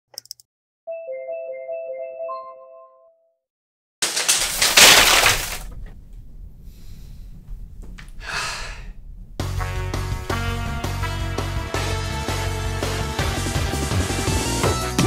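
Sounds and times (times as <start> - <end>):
loud crash: 4.0 - 13.2
music: 9.4 - 15.0.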